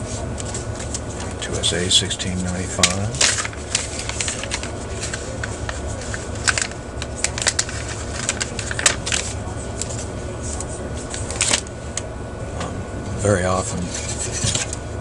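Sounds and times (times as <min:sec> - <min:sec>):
steady low hum: 0:00.0 - 0:15.0
plastic bag crinkling: 0:02.7 - 0:09.9.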